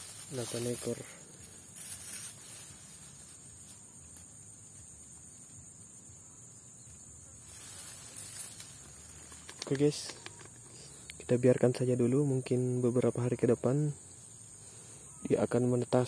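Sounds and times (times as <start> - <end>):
rice stalks rustling: 0.0 - 11.1
faint high hiss: 0.0 - 16.0.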